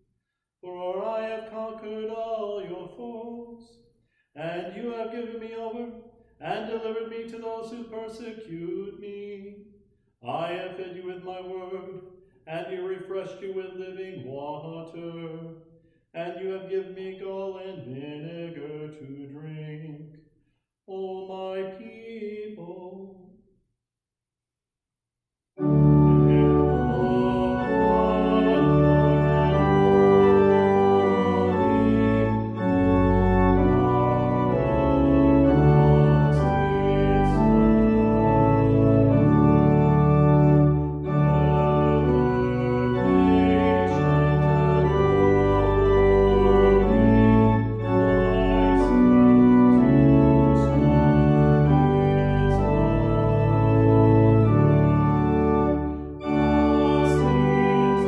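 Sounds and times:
organ music: 0:00.6 - 0:03.8, 0:04.4 - 0:09.5, 0:10.2 - 0:15.5, 0:25.6 - 0:58.0.

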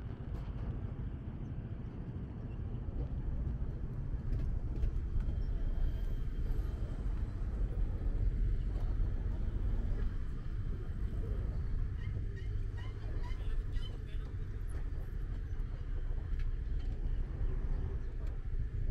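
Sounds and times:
low rumble of road traffic: 0:00.0 - 0:18.9.

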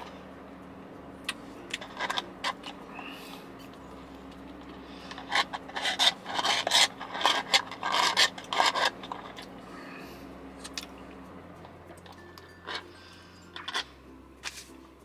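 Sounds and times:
straw scraping in plastic cup: 0:04.6 - 0:09.6.

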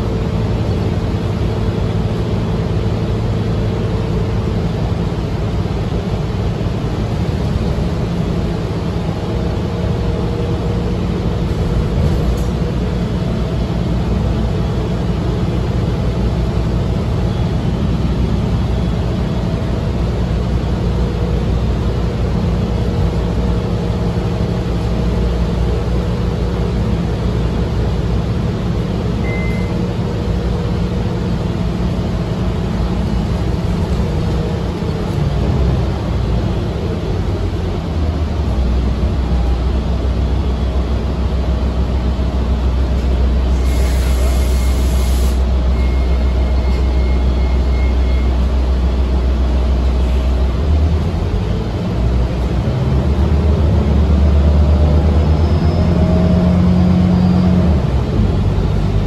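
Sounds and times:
bus engine drone: 0:00.0 - 0:59.0
road rumble: 0:00.0 - 0:59.0
faint high beeps: 0:29.2 - 0:29.8, 0:45.7 - 0:48.4
air hiss: 0:43.6 - 0:45.5.

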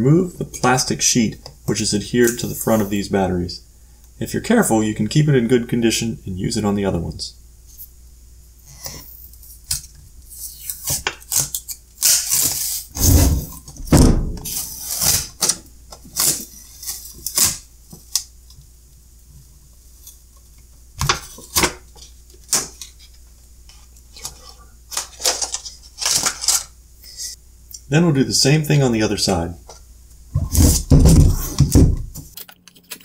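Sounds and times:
plastic sheet crinkling: 0:24.2 - 0:26.7.

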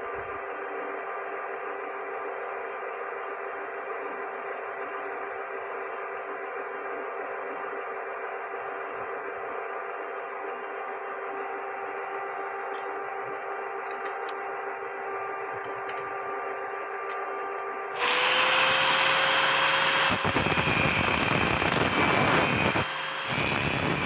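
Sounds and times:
steady hum: 0:00.0 - 0:24.0
angle grinder cutting steel: 0:17.9 - 0:24.0.

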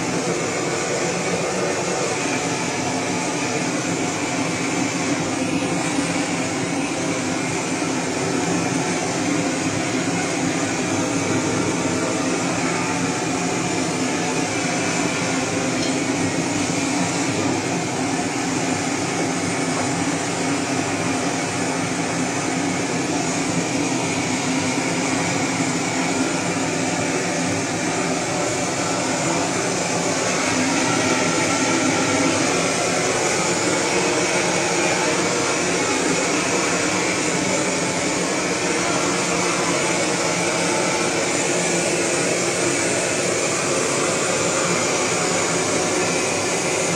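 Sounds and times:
gas blowtorch burning: 0:00.0 - 0:46.9.

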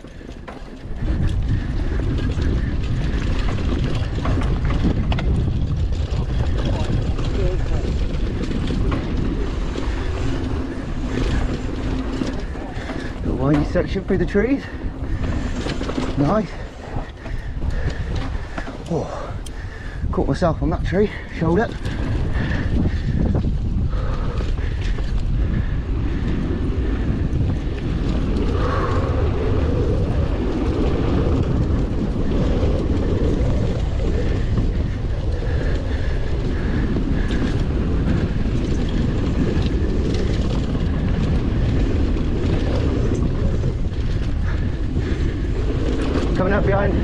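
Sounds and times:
bike knocks and rattles: 0:00.0 - 0:20.2
bike tyre noise: 0:00.0 - 0:47.0
wind on microphone: 0:00.0 - 0:47.0.

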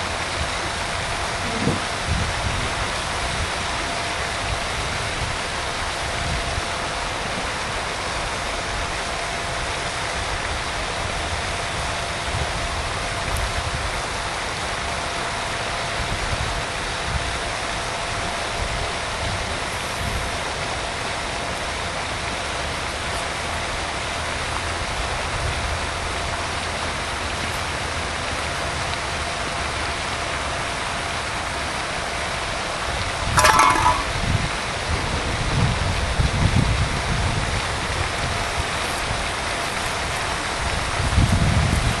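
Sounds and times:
wind buffeting microphone: 0:00.0 - 0:03.8, 0:33.2 - 0:42.0.

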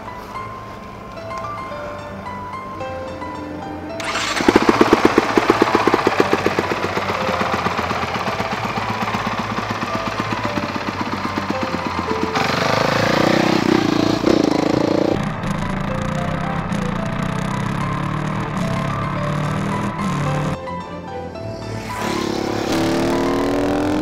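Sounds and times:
motorcycle engine revving: 0:04.0 - 0:20.6, 0:21.6 - 0:24.0.

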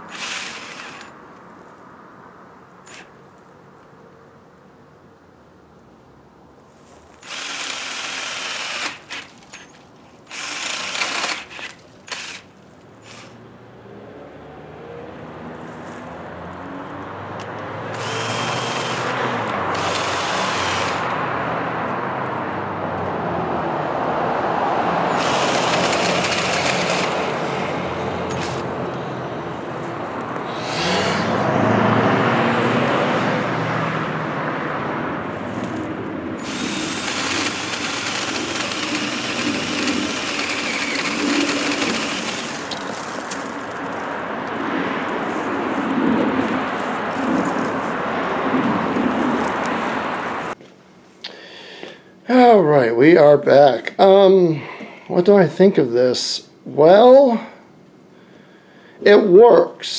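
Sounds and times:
chainsaw attachment cutting wood: 0:00.0 - 0:01.2, 0:02.9 - 0:03.2, 0:07.2 - 0:13.4, 0:17.9 - 0:21.2, 0:25.1 - 0:28.7, 0:30.5 - 0:31.4, 0:36.4 - 0:43.8.

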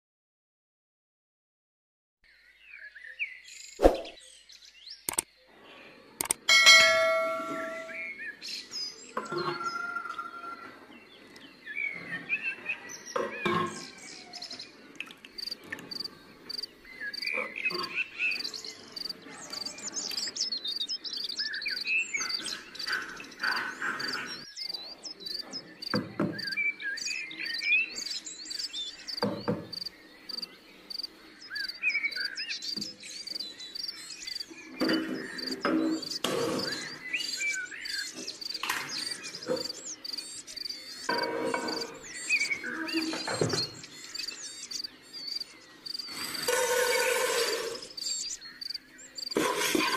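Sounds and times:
birds chirping: 0:02.2 - 0:49.9
cricket chirping: 0:15.3 - 0:19.2, 0:28.6 - 0:42.1, 0:43.6 - 0:49.4
kitchen knocks and clatters: 0:34.8 - 0:36.8, 0:41.1 - 0:42.0, 0:49.4 - 0:49.9.

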